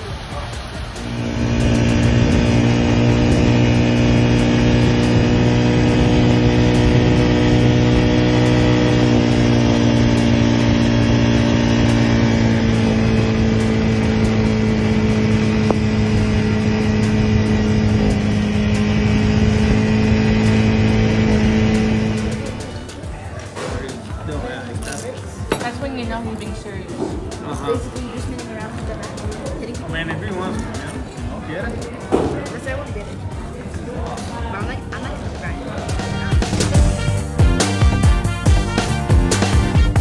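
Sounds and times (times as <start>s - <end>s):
quad bike engine running: 0.0s - 23.2s, 35.9s - 40.0s.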